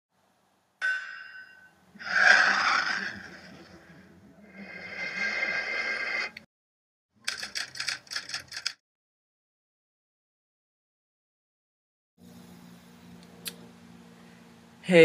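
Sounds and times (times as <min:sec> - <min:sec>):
bright ring: 0:00.8 - 0:01.9.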